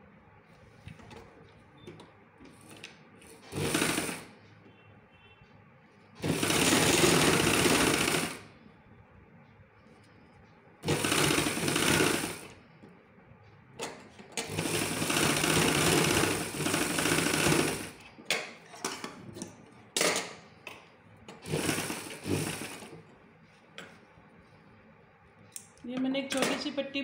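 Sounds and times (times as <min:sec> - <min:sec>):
sewing machine stitching: 0:02.5 - 0:04.4, 0:06.2 - 0:08.5, 0:10.8 - 0:12.6, 0:13.8 - 0:18.0, 0:21.3 - 0:23.0.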